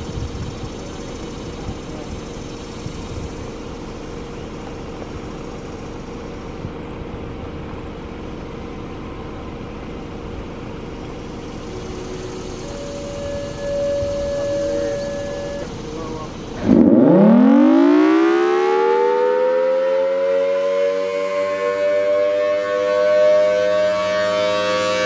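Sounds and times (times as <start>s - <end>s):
faint steady tones: 0.0s - 19.4s
blower rumble and air rush: 0.0s - 25.0s
rising siren tone: 11.6s - 25.0s.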